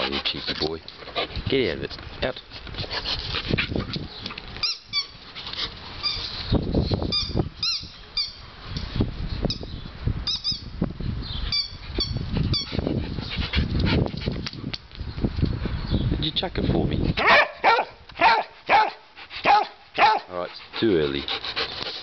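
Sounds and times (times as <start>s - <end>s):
wind rumble on microphone: 1.2s - 18.3s.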